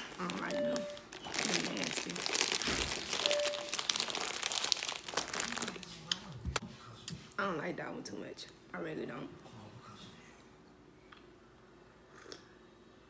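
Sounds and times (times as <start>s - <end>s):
plastic snack bag crinkling: 0.0s - 6.2s.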